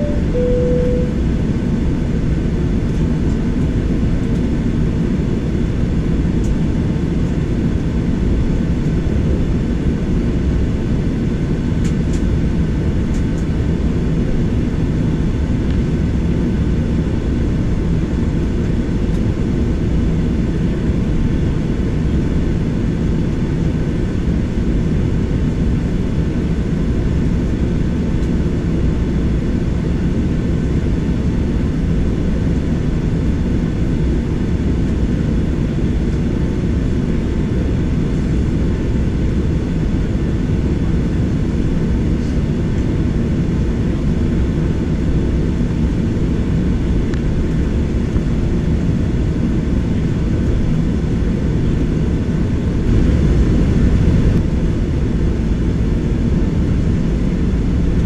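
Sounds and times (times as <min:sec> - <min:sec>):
faint whining tones: 0:00.0 - 0:01.2
jet engines rumbling: 0:51.5 - 0:58.0.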